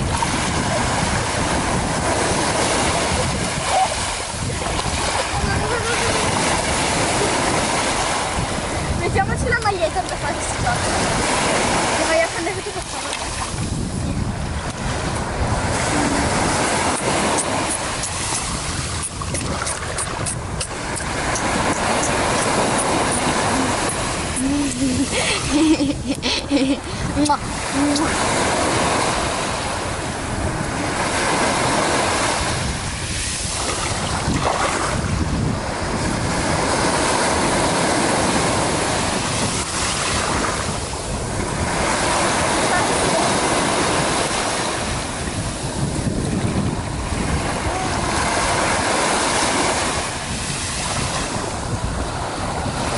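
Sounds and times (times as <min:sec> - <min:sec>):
sea waves washing onto beach: 0:00.0 - 0:52.9
wind buffeting microphone: 0:00.0 - 0:52.9.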